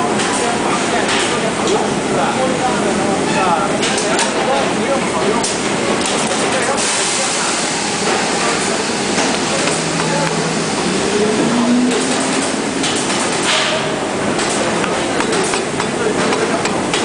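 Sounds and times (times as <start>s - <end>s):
factory machinery noise: 0.0s - 17.0s
machine hiss: 6.8s - 14.0s.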